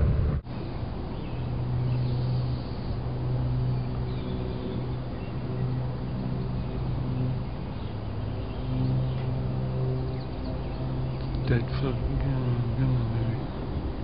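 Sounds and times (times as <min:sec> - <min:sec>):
distant propeller plane droning: 0:00.0 - 0:14.0.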